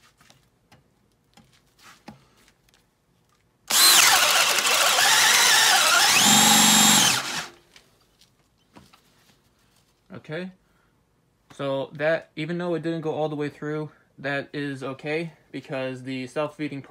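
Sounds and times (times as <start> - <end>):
power drill boring into wood: 3.7 - 7.6.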